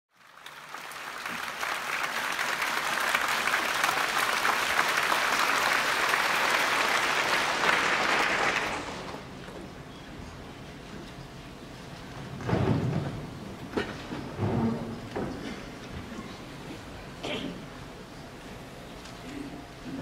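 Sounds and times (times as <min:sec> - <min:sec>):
audience applauding: 0:00.1 - 0:09.3.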